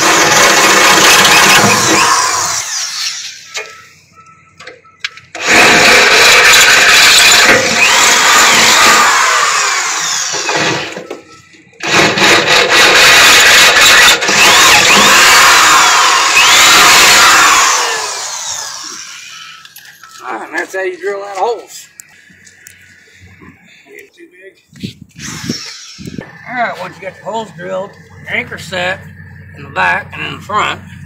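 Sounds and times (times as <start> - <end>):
electric drill boring through steel: 0.0 - 3.7, 5.3 - 11.1, 11.8 - 20.1, 25.2 - 27.4.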